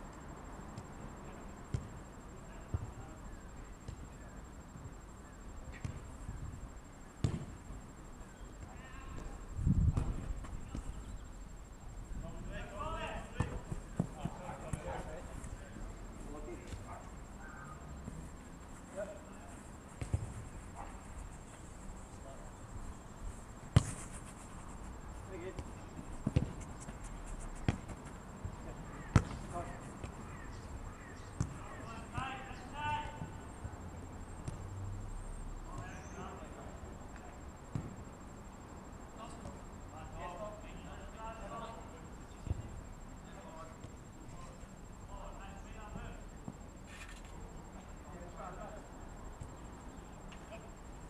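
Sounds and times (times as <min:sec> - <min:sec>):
football kick thuds: 0:07.2 - 0:07.6, 0:09.7 - 0:11.0, 0:20.0 - 0:20.4, 0:23.7 - 0:24.0, 0:25.5 - 0:26.6, 0:27.6 - 0:30.2
football struck hard: 0:07.2 - 0:07.6.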